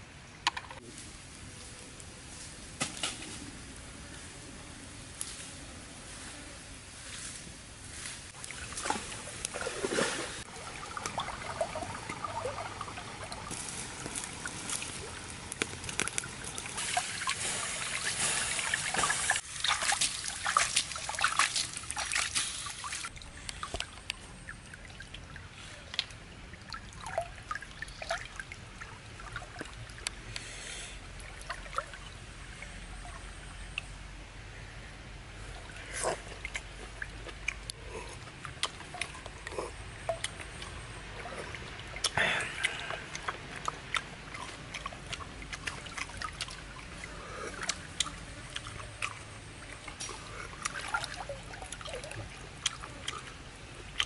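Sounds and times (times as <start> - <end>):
food crackling over wood fire: 13.5 - 19.5.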